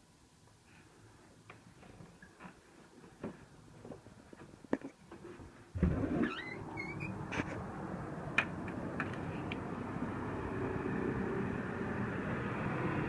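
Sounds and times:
distant traffic rumble: 5.7 - 13.0.

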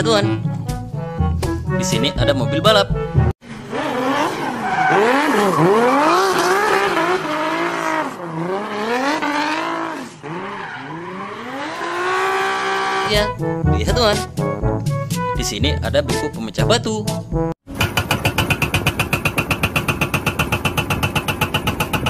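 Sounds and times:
car engine revving hard: 3.4 - 13.1
tyres squealing: 4.3 - 8.0.

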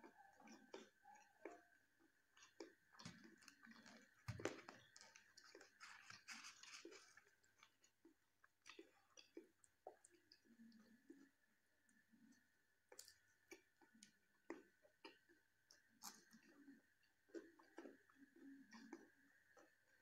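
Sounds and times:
chewing and mouth clicks: 0.0 - 20.0
fingers tearing flatbread: 2.4 - 7.7.

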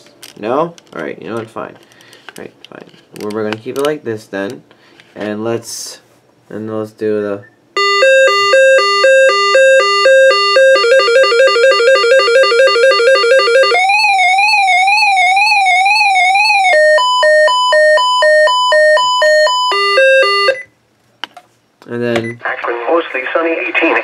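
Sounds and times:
radio alert tones: 7.8 - 20.6.

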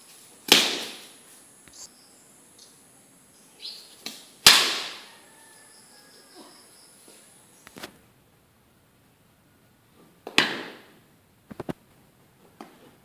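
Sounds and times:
cricket bat hitting ball: 10.2 - 10.9.

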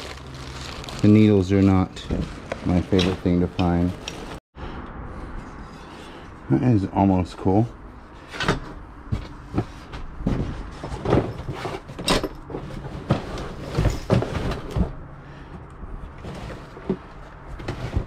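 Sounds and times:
objects knocking and clunking: 8.2 - 15.6.

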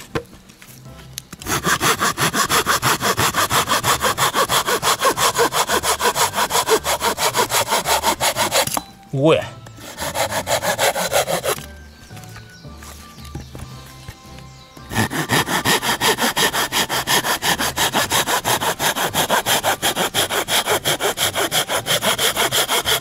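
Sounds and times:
hand saw cutting log: 1.4 - 8.9, 9.7 - 11.7, 14.8 - 23.0.

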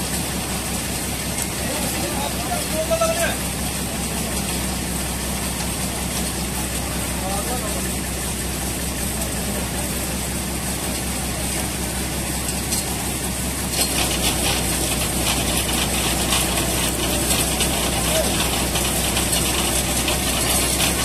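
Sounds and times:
truck engine idling: 0.0 - 21.0
rapid mechanical clicking: 10.9 - 21.0.

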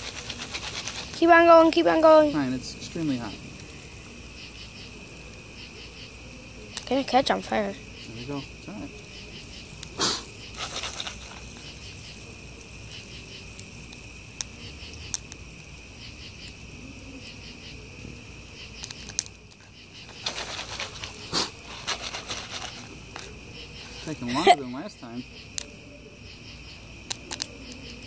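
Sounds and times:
rustling: 0.0 - 2.1, 9.8 - 12.2, 18.7 - 24.6
crickets chirping: 0.0 - 28.0
wood fire crackling: 0.0 - 28.0.

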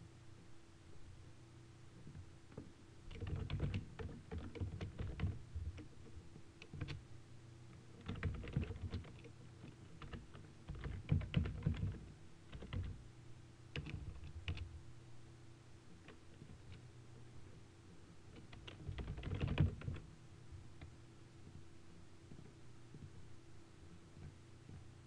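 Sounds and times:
faint hum: 0.0 - 25.0
keyboard typing: 3.1 - 5.9, 6.6 - 7.0, 7.8 - 13.0, 13.7 - 14.7, 18.3 - 20.1.

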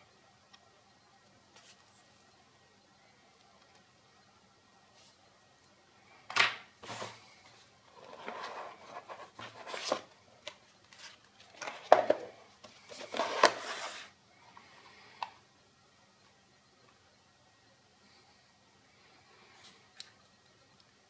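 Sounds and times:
cardboard packaging handling: 7.9 - 10.1, 12.9 - 14.1.

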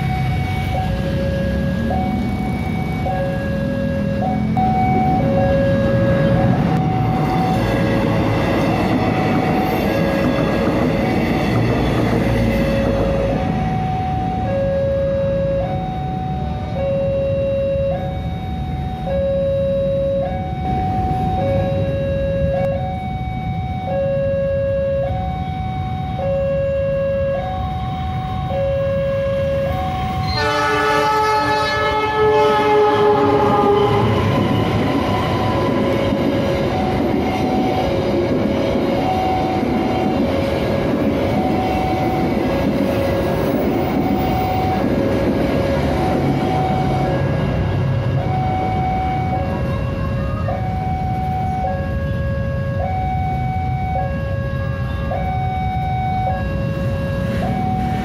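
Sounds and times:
two-tone crossing alarm: 0.0 - 58.0
train wheels rumbling: 3.6 - 14.0, 29.6 - 52.0
level crossing two-note alarm: 13.2 - 31.4
locomotive horn chord: 30.2 - 34.2.

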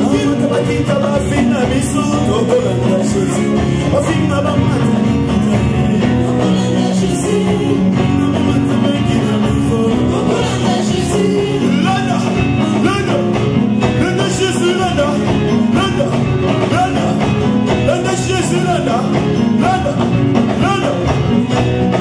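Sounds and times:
instrumental accompaniment: 0.0 - 22.0
woman singing: 5.0 - 12.8.

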